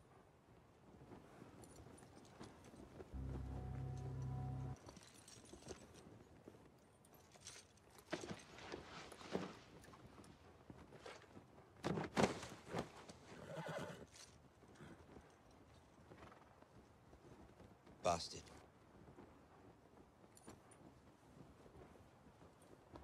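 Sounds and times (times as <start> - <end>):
horse whinny: 13.4 - 14.1.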